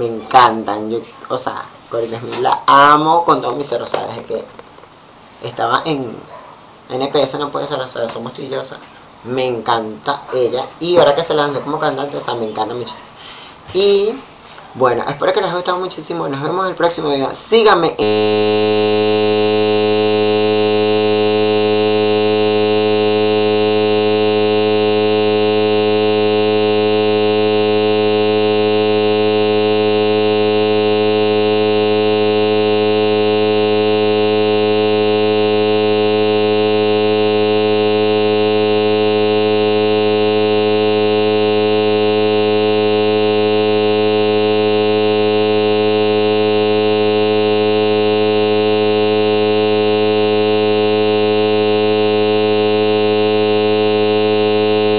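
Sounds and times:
electronic buzz: 0:18.0 - 0:54.9.

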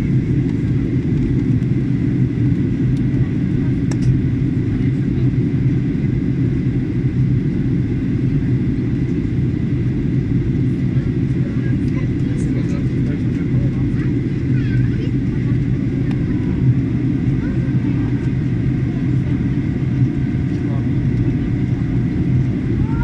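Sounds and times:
airplane cabin rumble: 0:00.0 - 0:23.0.

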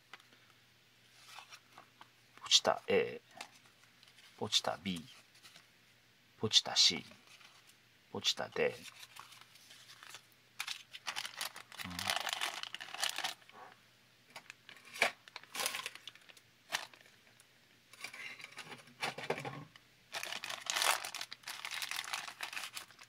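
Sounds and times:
plastic bag crinkling: 0:08.8 - 0:13.5, 0:14.4 - 0:17.2, 0:20.1 - 0:23.0.

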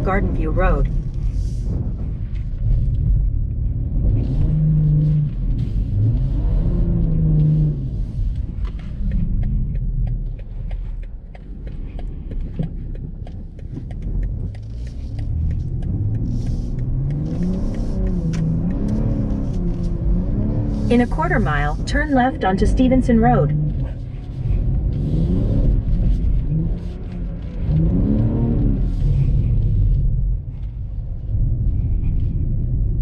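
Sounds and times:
car driving on snow rumble: 0:00.0 - 0:33.0
car engine revving: 0:00.0 - 0:33.0
small clicks and taps: 0:08.3 - 0:20.0.

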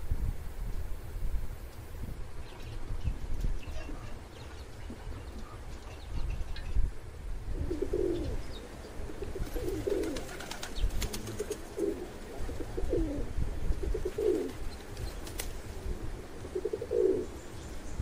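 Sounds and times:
pigeons cooing: 0:03.6 - 0:06.5, 0:07.5 - 0:17.8.

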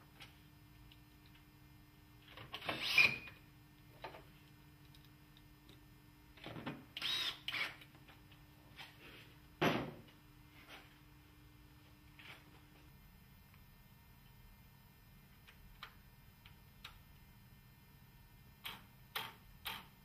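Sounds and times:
drill driving screws: 0:02.6 - 0:03.3, 0:07.0 - 0:07.8.

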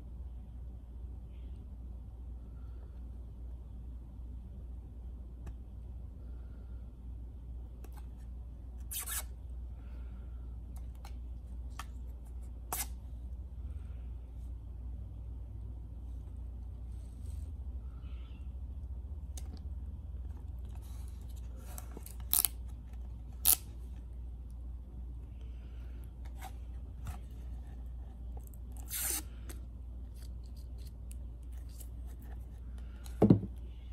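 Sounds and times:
steady low hum: 0:00.0 - 0:33.9
plastic film crackling rips: 0:22.0 - 0:22.6.

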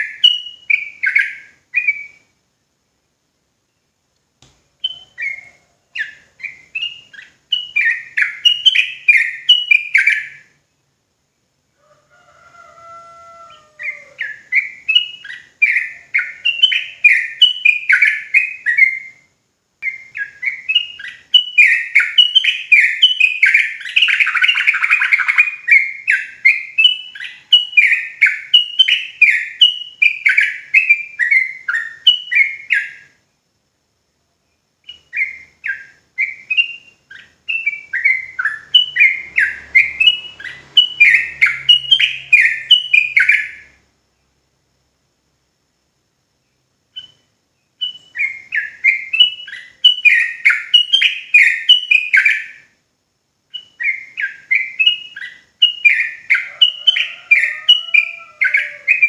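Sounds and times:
bulbul singing rolling song: 0:00.0 - 0:59.0.

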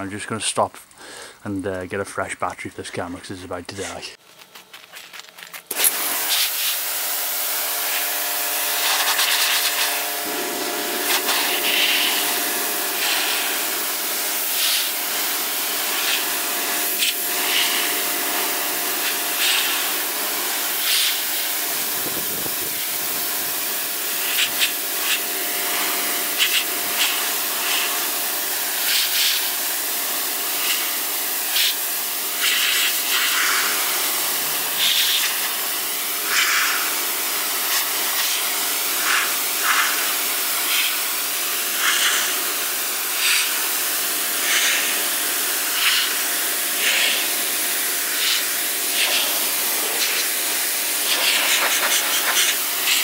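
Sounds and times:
water jet hissing: 0:00.0 - 0:01.8, 0:05.7 - 0:53.0
pressure washer hum: 0:05.6 - 0:53.0.

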